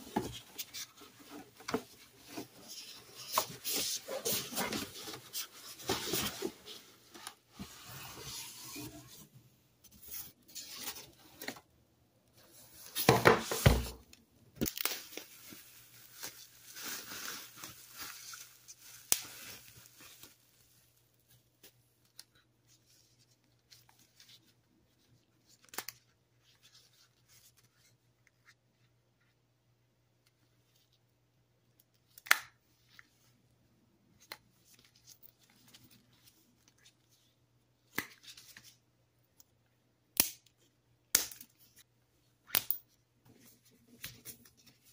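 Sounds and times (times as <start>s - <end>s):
plastic wrap crinkling and tearing: 14.6s - 21.0s.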